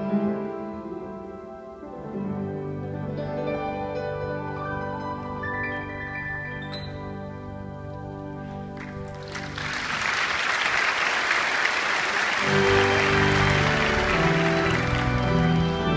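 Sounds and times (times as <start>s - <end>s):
congregation clapping: 8.7s - 15.9s
instrumental music: 12.3s - 15.9s.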